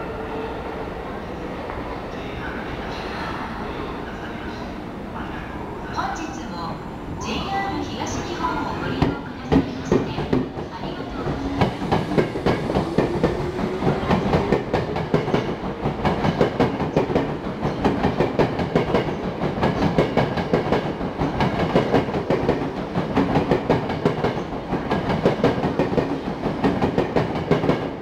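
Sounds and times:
electric train whine: 0.0 - 16.3.

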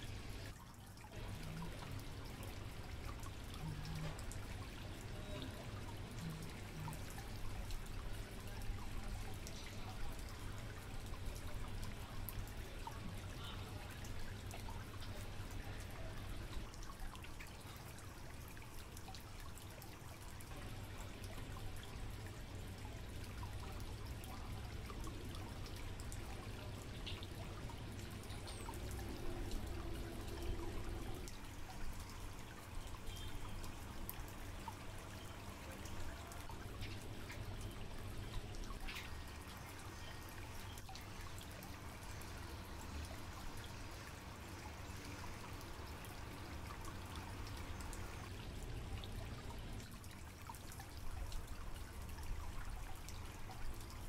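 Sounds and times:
low pump hum: 0.0 - 54.0
water trickling: 0.0 - 54.0.

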